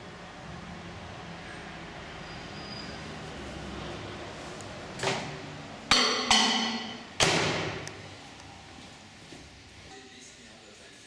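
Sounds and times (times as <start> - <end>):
sharp ringing knocks: 5.9 - 7.3.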